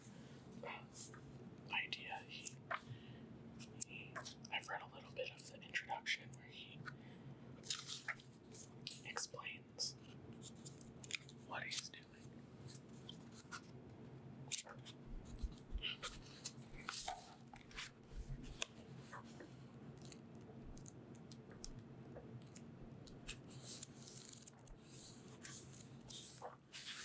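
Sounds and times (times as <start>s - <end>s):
faint low hum: 0.0s - 27.0s
book pages rustling: 7.6s - 9.2s, 10.0s - 11.8s, 12.6s - 13.8s, 14.5s - 27.0s.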